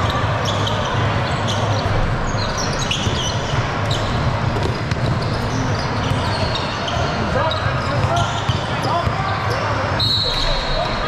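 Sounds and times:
crowd murmur: 0:00.0 - 0:11.0
sneakers squeaking on floor: 0:00.0 - 0:11.0
basketball bouncing: 0:02.6 - 0:05.4.

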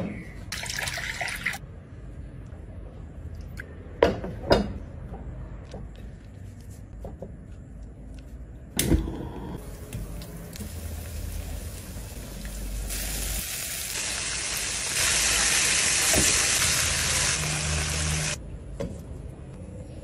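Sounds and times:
chicken sizzling in hot oil: 0:09.7 - 0:18.4.

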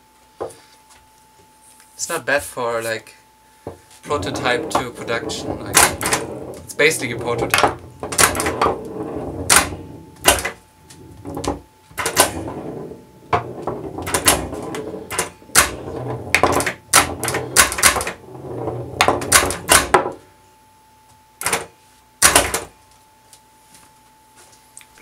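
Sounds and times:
pinball flippers clacking: 0:04.1 - 0:20.2
steel ball rolling and knocking: 0:04.1 - 0:20.2.

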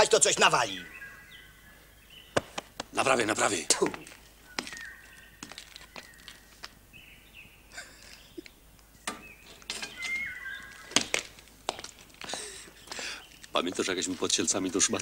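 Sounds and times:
birds chirping: 0:00.0 - 0:15.0
sharp knocks and clicks: 0:09.0 - 0:10.1.

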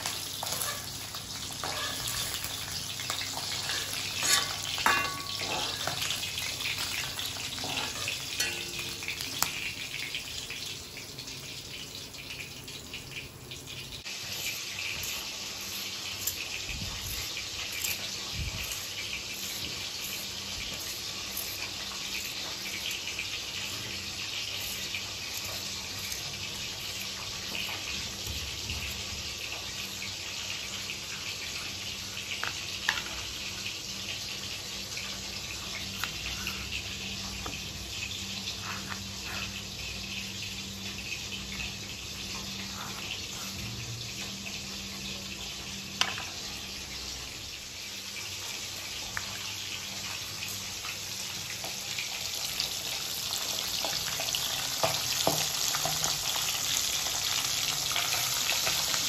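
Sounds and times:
peeler scraping a potato: 0:00.0 - 0:08.2, 0:14.2 - 0:29.9, 0:38.6 - 0:39.7
oil sizzling in a frying pan: 0:00.0 - 0:59.0.

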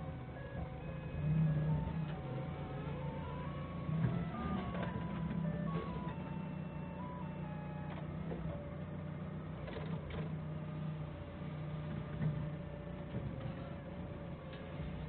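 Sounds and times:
forklift engine running: 0:00.0 - 0:15.0
stepping electronic tones: 0:00.1 - 0:08.9.

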